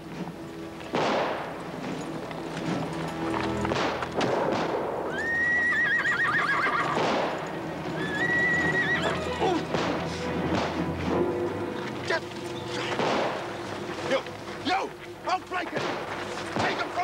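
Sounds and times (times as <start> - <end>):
hoofbeats: 0.0 - 17.0
horse neighing: 5.1 - 7.2, 7.9 - 9.6.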